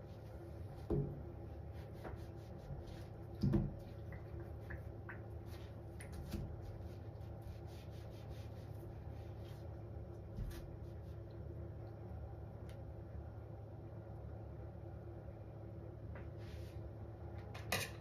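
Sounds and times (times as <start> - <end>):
sponge squelching in soapy sink: 0.0 - 12.0
steady low hum: 0.0 - 18.0.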